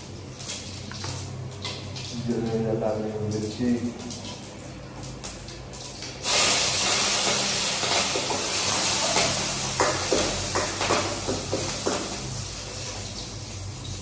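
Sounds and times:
oil popping and crackling: 0.0s - 14.0s
food sizzling in hot oil: 5.8s - 14.0s.

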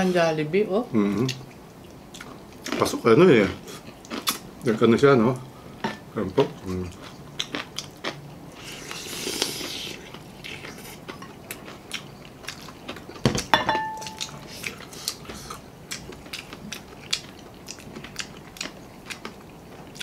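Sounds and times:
wet chewing and lip-smacking: 1.2s - 2.8s, 3.8s - 4.5s, 6.6s - 13.2s, 14.0s - 20.0s
glassware clinking: 13.5s - 14.3s.

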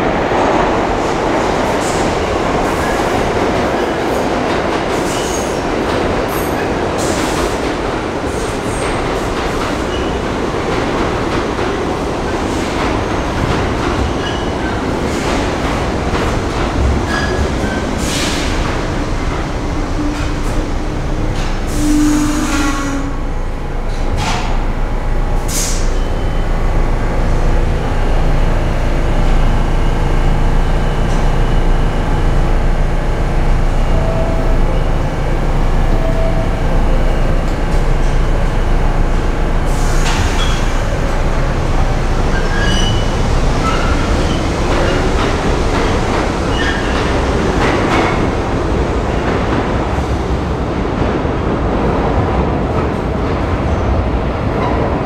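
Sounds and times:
train wheels rumbling on rail: 0.0s - 55.0s
wheel squeals: 42.3s - 43.2s.

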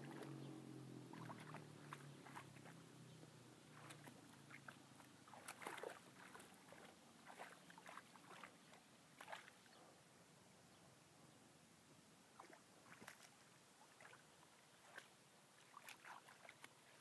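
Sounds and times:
dog splashing in water: 0.0s - 2.9s, 3.6s - 9.7s, 12.4s - 17.0s.

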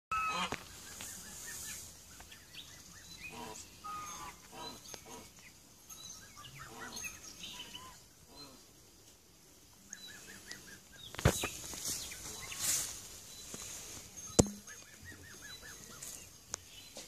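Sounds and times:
chickens clucking: 0.1s - 5.6s
small birds chirping: 0.2s - 17.0s.

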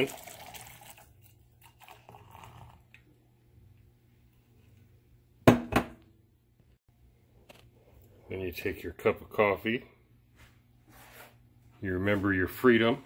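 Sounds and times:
coffee pouring into metal tumbler: 0.0s - 3.1s.

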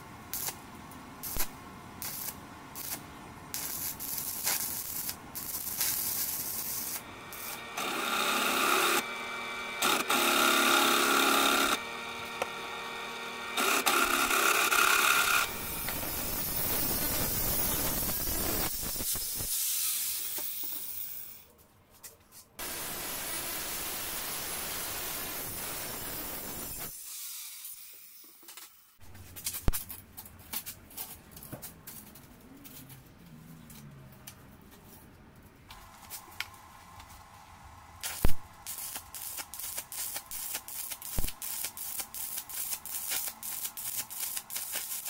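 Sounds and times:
arc welding crackling: 0.3s - 7.7s, 15.1s - 20.4s, 22.6s - 27.3s, 38.0s - 45.0s
angle grinder cutting steel: 3.6s - 21.4s, 22.6s - 28.2s.

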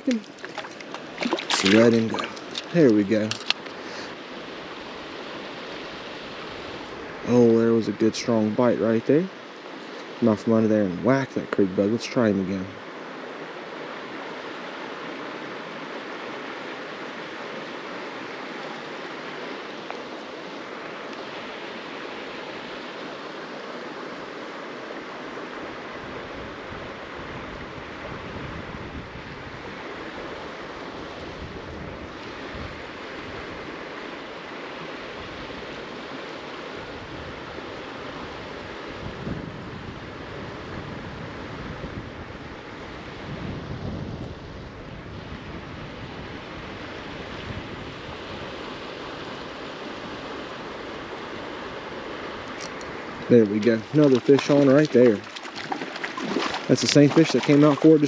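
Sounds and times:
wind buffeting microphone: 0.0s - 8.6s, 25.6s - 33.8s, 36.8s - 58.0s
flowing creek: 0.0s - 58.0s.

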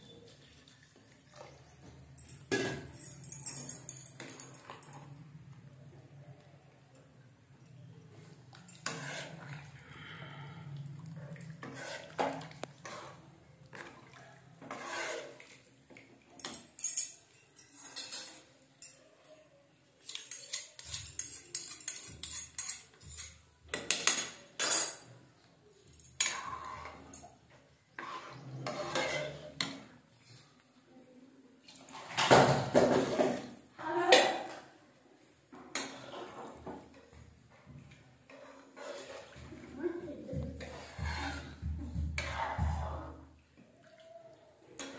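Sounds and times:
metal spoon scraping a pan: 8.6s - 9.8s, 11.6s - 14.0s, 14.6s - 15.6s, 20.0s - 25.1s, 26.0s - 27.3s, 27.9s - 30.5s, 35.6s - 36.6s, 38.3s - 39.5s, 40.6s - 42.9s.

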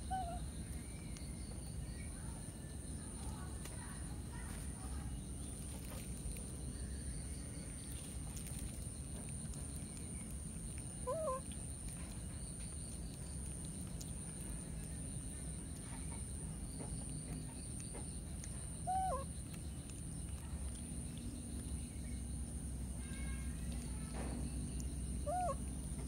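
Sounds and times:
baby monkey coo calls: 0.0s - 0.5s, 10.8s - 11.6s, 18.8s - 19.5s, 25.1s - 25.8s.

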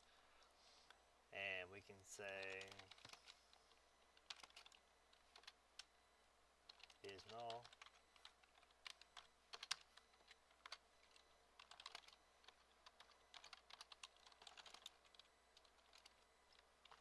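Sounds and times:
typing on a keyboard: 2.2s - 3.4s, 4.1s - 5.9s, 6.7s - 17.0s.

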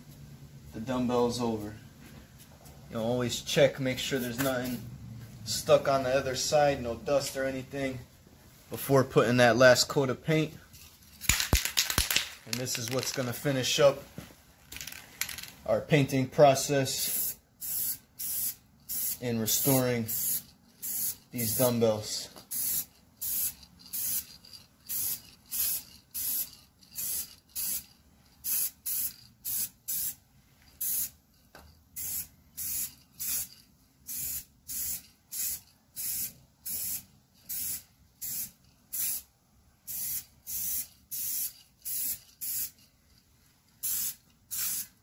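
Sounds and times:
spray-paint can hissing in bursts: 17.0s - 21.8s, 22.5s - 30.2s, 30.8s - 31.2s, 32.0s - 33.5s, 34.1s - 42.8s, 43.8s - 45.0s.

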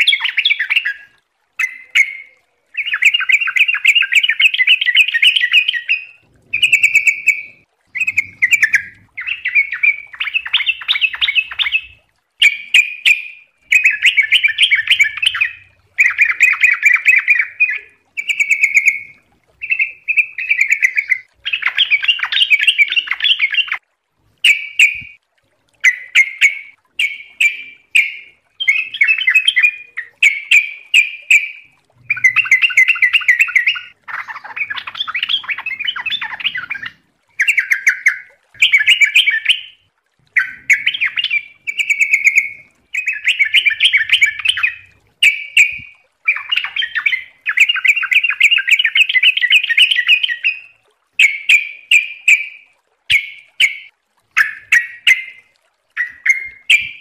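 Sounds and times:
bird warbling: 0.0s - 23.8s, 25.8s - 55.4s.

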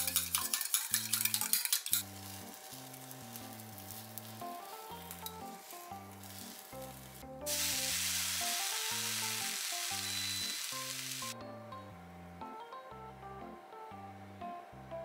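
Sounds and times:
hot pan sizzling: 0.0s - 11.4s
light background music: 0.0s - 15.0s.

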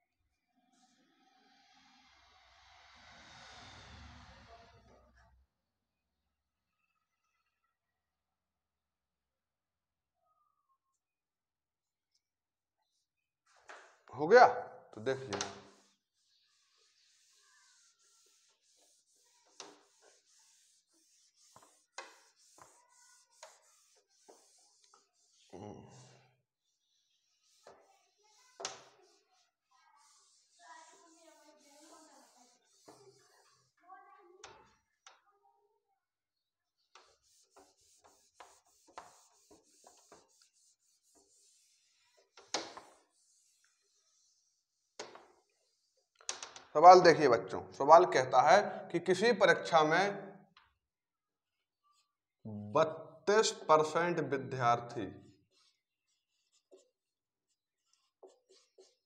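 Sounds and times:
duster rubbing whiteboard: 15.0s - 33.8s, 36.8s - 46.1s, 55.3s - 59.0s.

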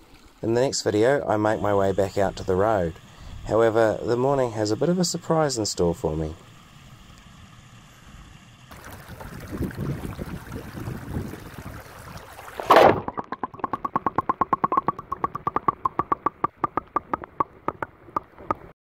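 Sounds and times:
creek water rushing: 8.7s - 14.0s
loud splash into water: 8.7s - 15.0s
bubbling pips: 8.7s - 18.7s.

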